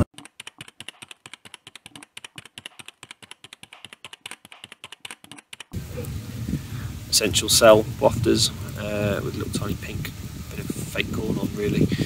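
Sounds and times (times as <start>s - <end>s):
rapid keyboard key clicks: 0.0s - 5.8s.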